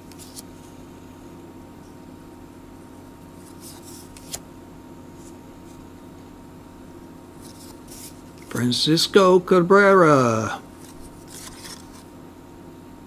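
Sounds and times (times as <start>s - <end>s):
cards scraping together: 0.0s - 0.5s, 3.4s - 4.4s, 7.4s - 8.6s, 10.7s - 12.1s
steady low hum: 0.0s - 13.0s.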